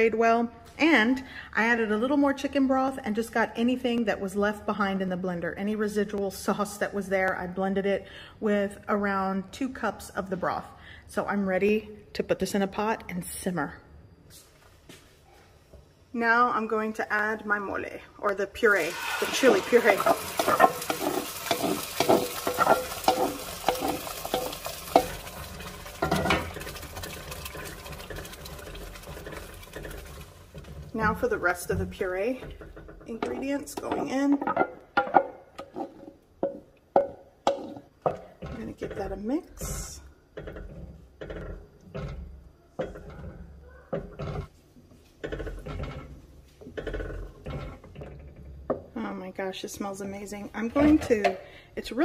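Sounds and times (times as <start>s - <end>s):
puree sizzling in hot pot: 18.6s - 30.9s
wooden spoon scraping metal bowl: 18.6s - 51.3s
spoon stirring sauce: 19.8s - 30.8s.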